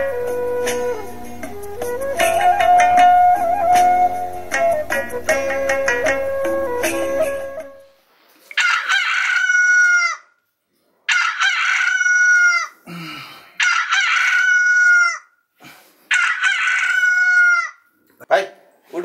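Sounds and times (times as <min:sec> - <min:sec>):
rooster crowing: 0:08.6 - 0:10.3, 0:11.1 - 0:12.8, 0:13.6 - 0:15.3, 0:16.1 - 0:17.8.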